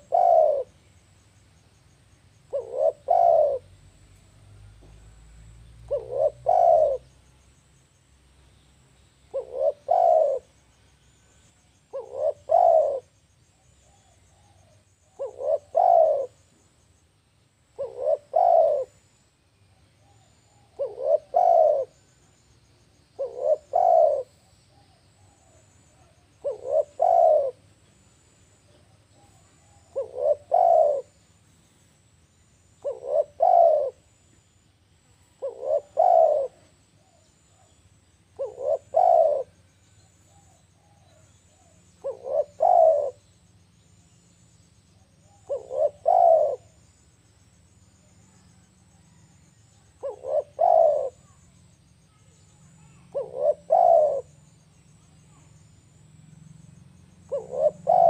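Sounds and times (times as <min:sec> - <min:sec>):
dove cooing: 0:00.0 - 0:01.0, 0:02.5 - 0:07.2, 0:09.3 - 0:11.2, 0:11.9 - 0:16.6, 0:17.7 - 0:19.1, 0:20.0 - 0:22.4, 0:23.1 - 0:27.7, 0:28.6 - 0:31.2, 0:32.8 - 0:34.1, 0:35.4 - 0:43.4, 0:44.9 - 0:46.9, 0:48.1 - 0:51.8, 0:52.7 - 0:55.9, 0:57.0 - 0:58.0.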